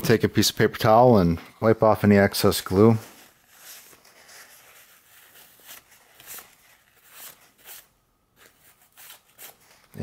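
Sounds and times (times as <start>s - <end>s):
paper towel rustling: 2.2s - 10.0s.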